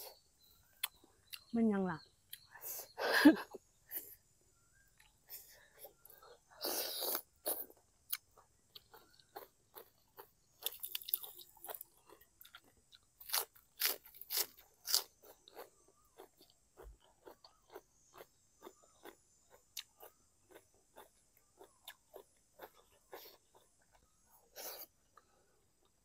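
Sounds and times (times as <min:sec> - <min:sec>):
crunching raw vegetables: 0:06.3 - 0:25.0.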